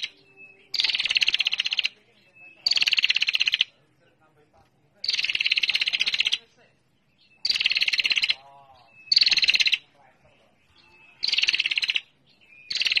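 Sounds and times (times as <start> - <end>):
bird buzzing trill: 0.7 - 1.9.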